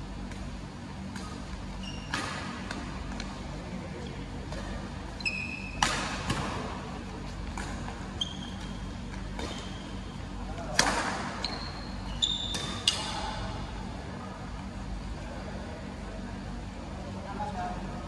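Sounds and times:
shoes squeaking on floor: 1.8 - 2.2, 5.1 - 5.8, 8.0 - 10.0, 11.4 - 13.2.

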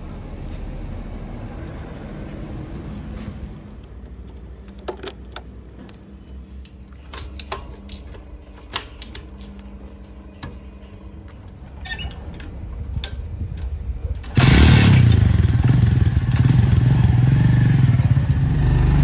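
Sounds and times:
metallic clicks and clanks: 3.7 - 14.4
steady low rumble: 9.5 - 14.4.

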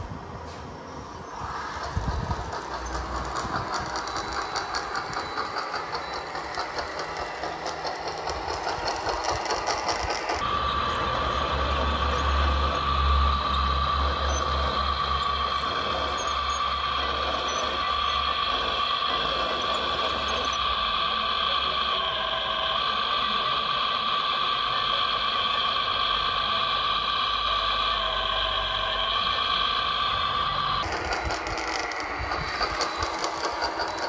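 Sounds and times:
hydraulic pump whine: 1.0 - 34.0
toy loader tracks clattering: 1.7 - 10.4, 30.8 - 34.0.

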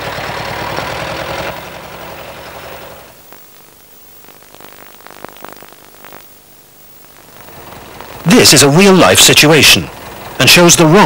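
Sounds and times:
forklift engine running: 0.0 - 3.2, 7.3 - 11.0.

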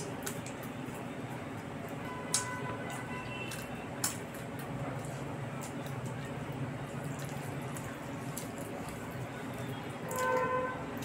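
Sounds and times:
food squishing between fingers: 0.0 - 11.0
wet chewing and mouth clicks: 0.0 - 11.0.

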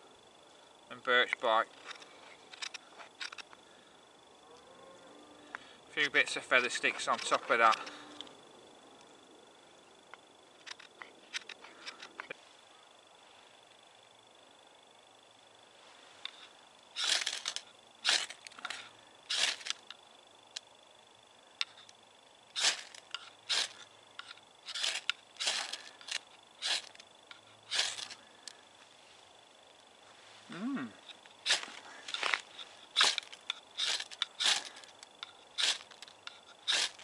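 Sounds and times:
faint hiss: 15.4 - 17.0
ferro rod scraped with striker: 22.6 - 28.2, 31.0 - 37.0.

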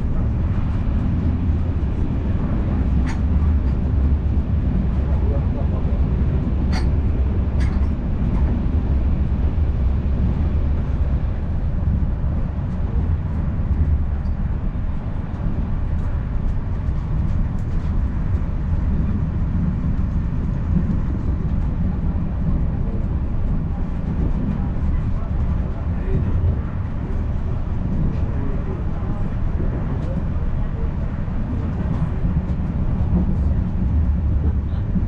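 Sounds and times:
train rumbling along track: 0.0 - 35.0.

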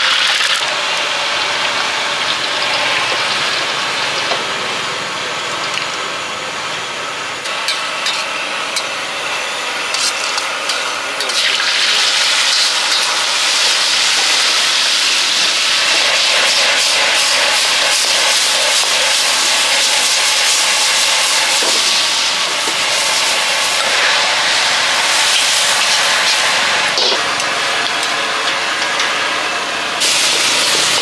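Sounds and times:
gas burner hissing: 0.0 - 31.0
food sizzling in a wok: 7.4 - 29.4, 30.0 - 31.0.

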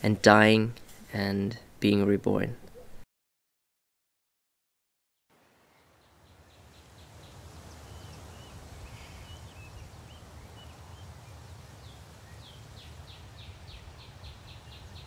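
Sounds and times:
birds chirping: 5.7 - 15.0.

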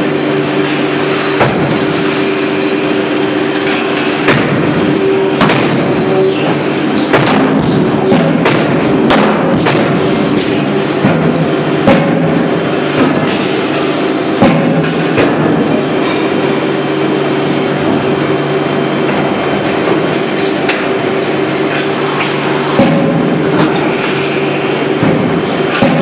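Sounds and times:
machinery humming: 0.0 - 26.0
forging hammer banging metal: 3.6 - 16.3, 22.7 - 24.0, 24.9 - 26.0.

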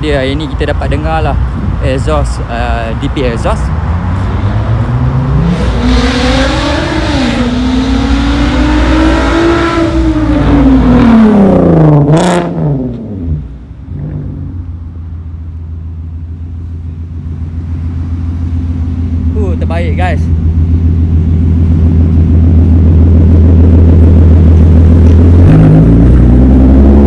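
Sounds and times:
car engine accelerating past: 4.0 - 14.6, 25.1 - 27.0.

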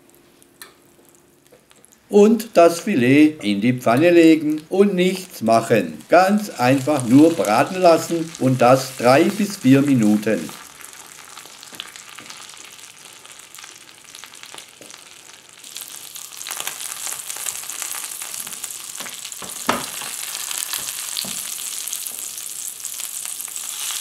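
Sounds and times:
fish sizzling in a frying pan: 5.1 - 24.0.

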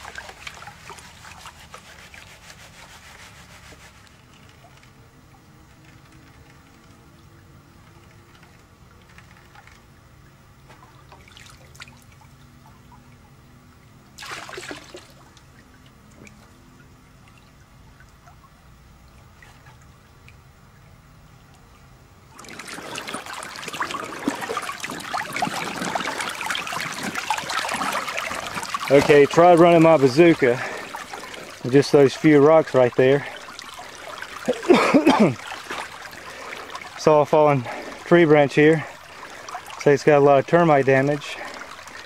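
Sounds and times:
water splash: 0.0 - 4.0, 10.7 - 12.4, 14.1 - 16.6, 22.3 - 42.0
creek water trickling: 0.0 - 42.0
water rushing over rocks: 22.4 - 42.0.

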